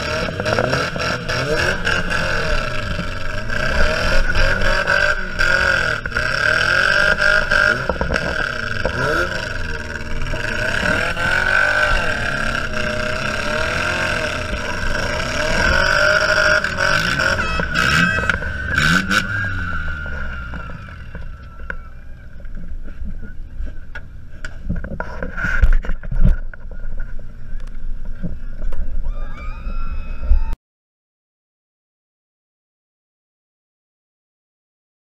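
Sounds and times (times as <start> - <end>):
car engine revving: 0.0 - 21.7
steady high whine: 0.0 - 29.4.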